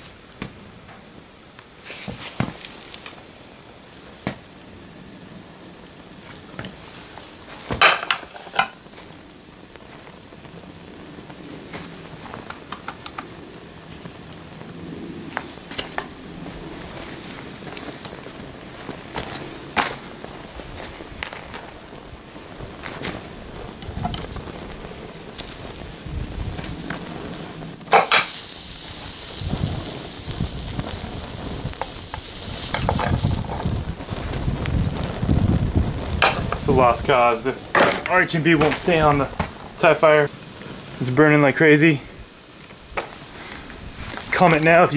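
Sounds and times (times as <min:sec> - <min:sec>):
burning plastic sizzling: 0:00.0 - 0:44.9
flames hissing with crackles: 0:00.0 - 0:44.9
sharp burst of noise: 0:24.2 - 0:34.6, 0:35.3 - 0:44.9.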